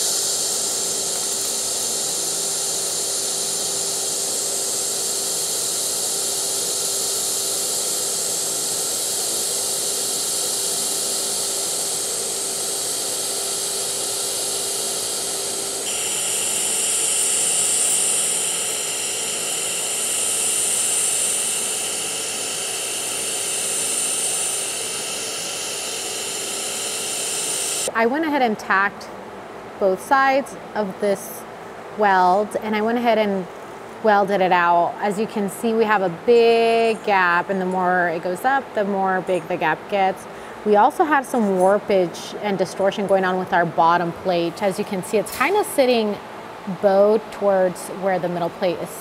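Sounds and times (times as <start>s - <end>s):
welding arc hissing and buzzing: 0.0s - 27.9s, 44.2s - 47.1s
faint steady hum: 0.0s - 49.0s.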